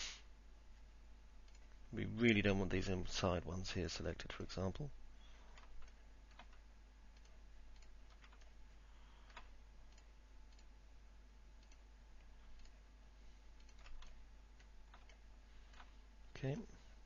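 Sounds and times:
low steady hum: 0.0 - 17.0
computer mouse clicks: 1.4 - 1.7, 5.6 - 6.6, 7.2 - 8.6, 9.3 - 10.7, 11.6 - 12.8, 13.6 - 15.9.

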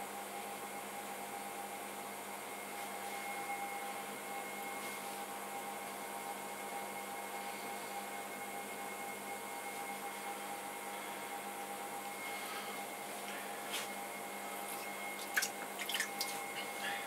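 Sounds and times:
pottery wheel motor humming: 14.2 - 17.0.

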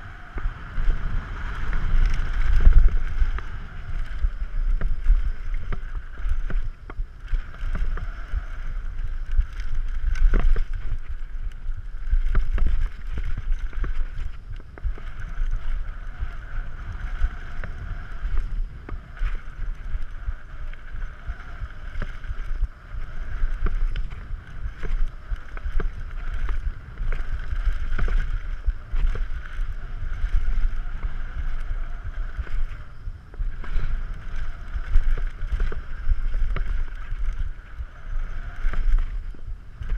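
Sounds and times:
tyres rumbling over dirt: 0.0 - 39.9
wind buffeting microphone: 0.0 - 39.9.

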